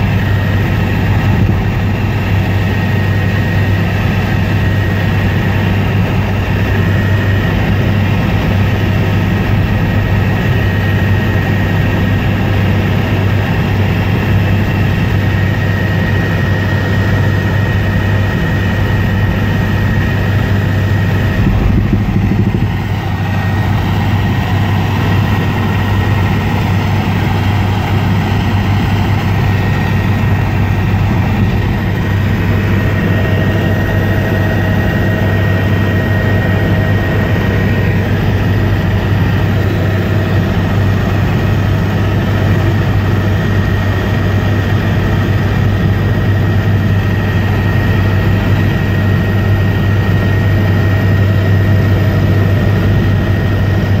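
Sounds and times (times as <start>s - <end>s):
helicopter rotor and engine drone: 0.0s - 54.0s.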